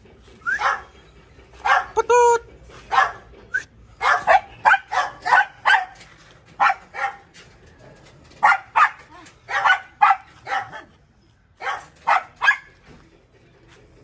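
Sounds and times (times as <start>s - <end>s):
dog barking high-pitched yaps: 0.5s - 0.9s, 1.6s - 2.0s, 2.9s - 3.2s, 4.0s - 6.0s, 6.6s - 7.3s, 8.4s - 10.9s, 11.6s - 12.8s.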